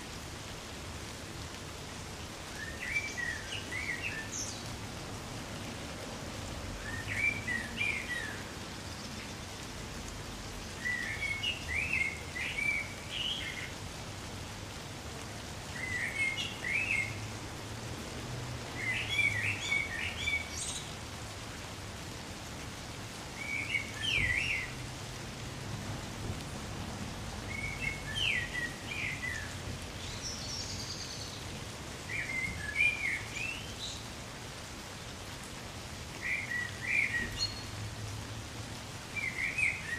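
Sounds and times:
light rain falling: 0:00.0 - 0:39.9
songbird chirping: 0:02.5 - 0:04.8, 0:06.8 - 0:13.8, 0:15.6 - 0:17.3, 0:18.8 - 0:21.0, 0:27.5 - 0:34.1, 0:36.1 - 0:37.8, 0:39.1 - 0:39.9.

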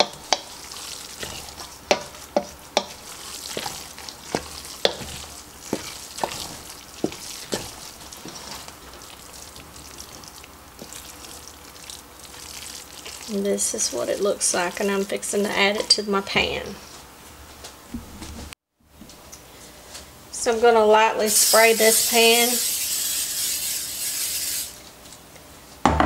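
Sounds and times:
spoon stirring thick wet mixture: 0:00.0 - 0:16.0.

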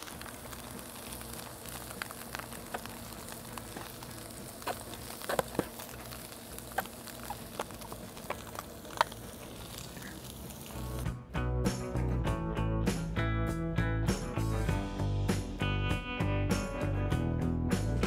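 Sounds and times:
sharp pops and spits: 0:00.0 - 0:11.1
steaks sizzling on griddle: 0:00.0 - 0:11.1
guitar music: 0:08.1 - 0:18.0.

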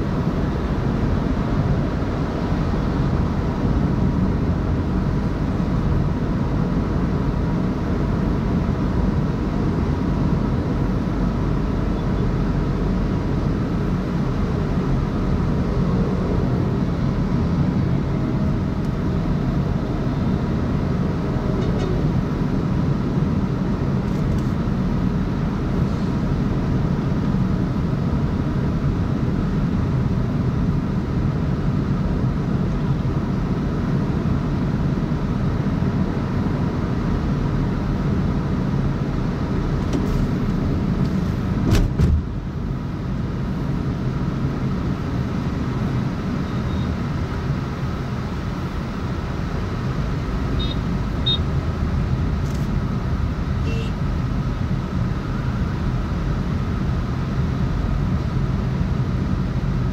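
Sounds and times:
car engine and tyre noise: 0:00.0 - 0:59.9.

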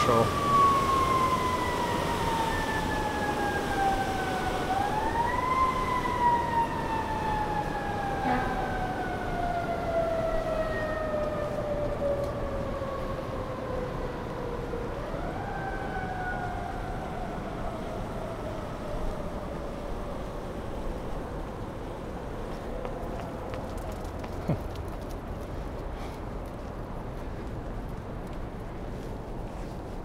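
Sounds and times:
siren wailing: 0:00.0 - 0:20.4.

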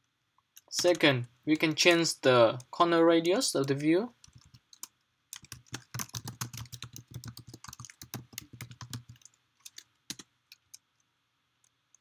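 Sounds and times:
typing on keyboard: 0:04.2 - 0:10.8.

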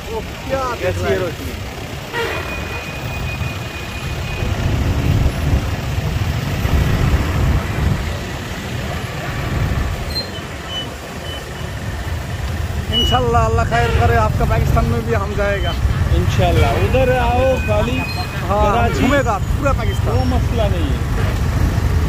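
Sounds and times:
traffic engine rumble: 0:00.0 - 0:22.0.

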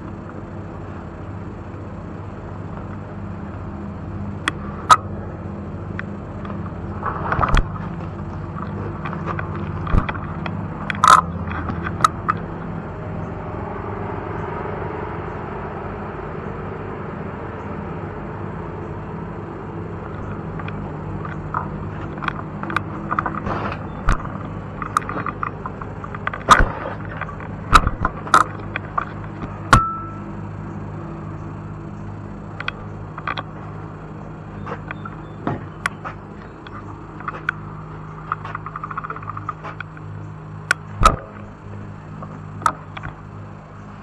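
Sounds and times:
steady low hum: 0:00.0 - 0:44.0
clicks knocks and rattles of handling: 0:06.0 - 0:12.7, 0:20.1 - 0:30.2, 0:32.6 - 0:33.6, 0:34.6 - 0:40.1.

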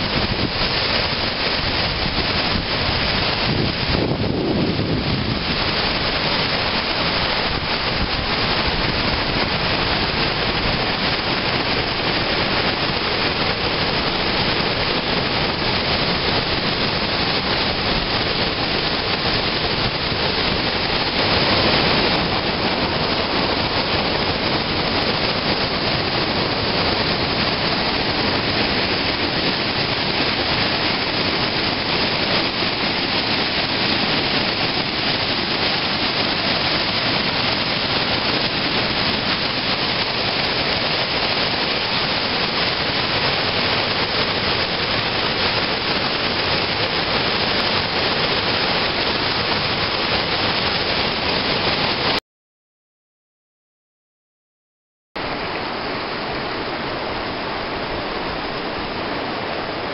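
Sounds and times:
whitewater rapids rushing: 0:00.0 - 0:52.2, 0:55.2 - 0:59.9.

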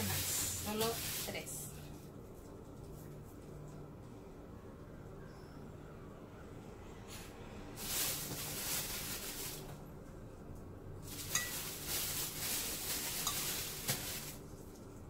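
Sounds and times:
plastic sheet crinkling: 0:00.0 - 0:01.7, 0:07.8 - 0:09.8, 0:11.0 - 0:15.0.

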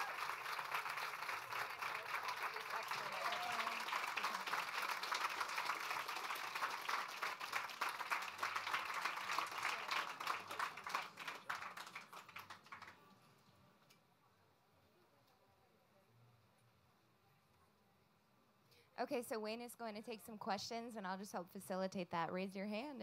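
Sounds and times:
audience applauding: 0:00.0 - 0:13.1.

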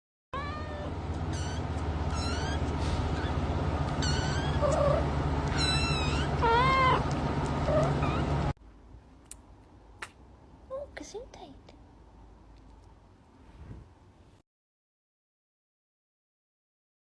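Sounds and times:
cat meowing: 0:00.4 - 0:03.4, 0:04.0 - 0:07.1
steady low hum: 0:00.4 - 0:14.4.

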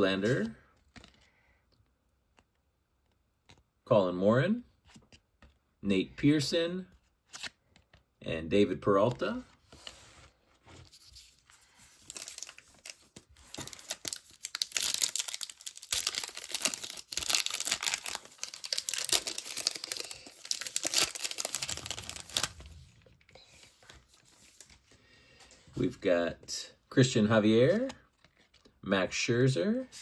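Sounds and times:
wrapper tearing and crinkling: 0:11.9 - 0:22.8.

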